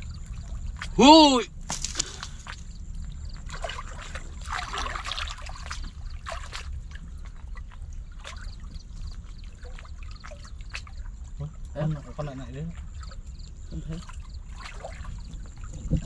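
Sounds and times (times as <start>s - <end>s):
water sloshing and splashing: 0.0s - 16.0s.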